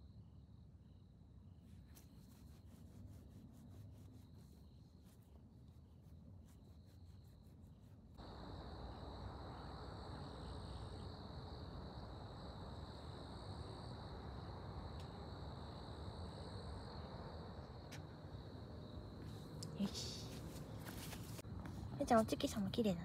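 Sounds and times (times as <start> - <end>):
insects trilling: 3.6 - 20.9.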